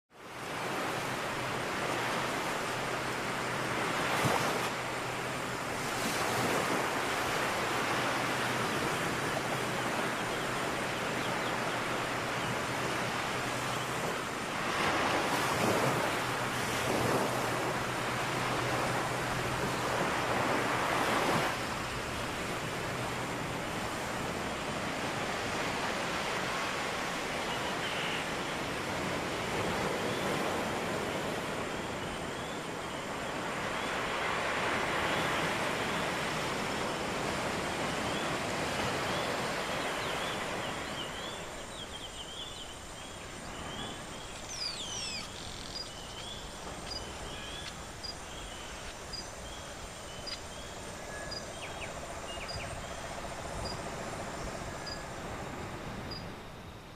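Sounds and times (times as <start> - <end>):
waves washing onto beach: 0.1 - 56.9
small birds chirping: 39.1 - 55.1.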